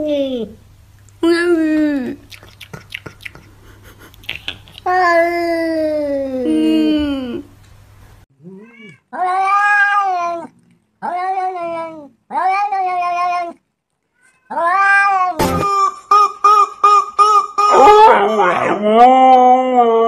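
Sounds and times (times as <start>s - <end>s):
cat meowing: 8.4s - 13.6s, 14.2s - 15.4s.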